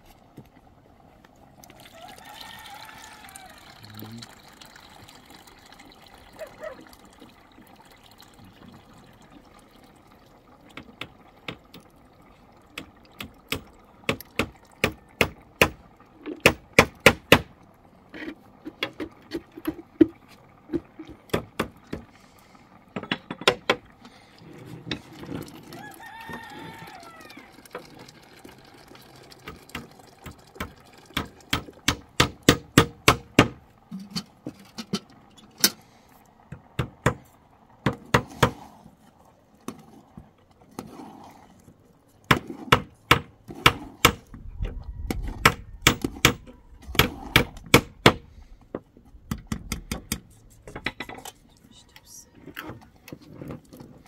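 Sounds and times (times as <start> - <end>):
rooster crowing: 1.8 - 3.9, 25.7 - 27.7.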